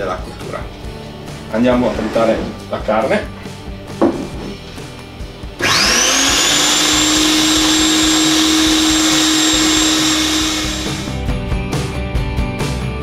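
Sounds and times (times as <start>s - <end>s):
electric meat grinder motor whine: 5.6s - 11.2s.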